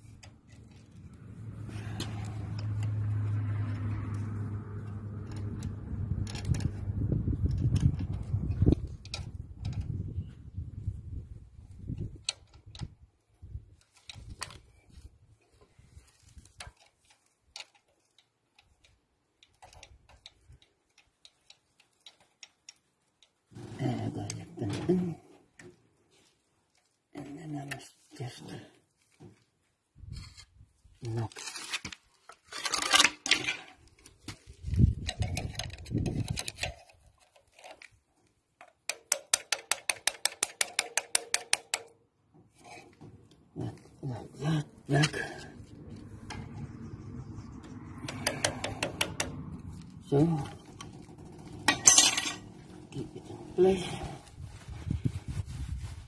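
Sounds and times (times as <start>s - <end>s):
fingers clicking and tapping fittings: 38.6s - 42.0s, 47.6s - 51.8s
low engine rumble with knocks: 42.4s - 53.7s.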